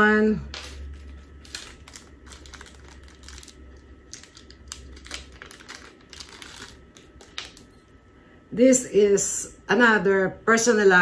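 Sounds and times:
plastic bag crinkling: 0.5s - 7.9s.

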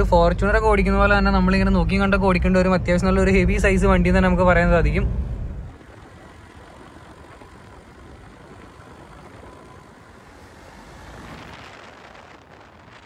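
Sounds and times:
vehicles driving on wet road: 0.0s - 13.0s.

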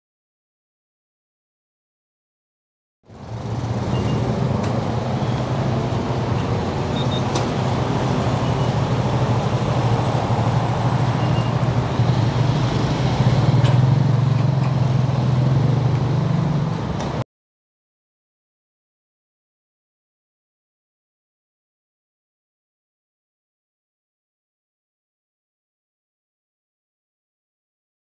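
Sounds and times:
motorcycle engine humming: 3.1s - 17.2s
traffic noise: 3.1s - 17.2s
faint short beeps: 3.9s - 4.2s.

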